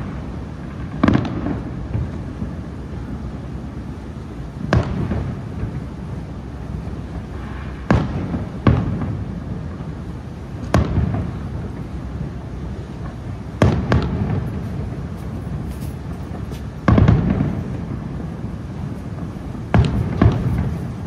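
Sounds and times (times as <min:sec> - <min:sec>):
firework shells bursting: 0:10.6 - 0:21.0.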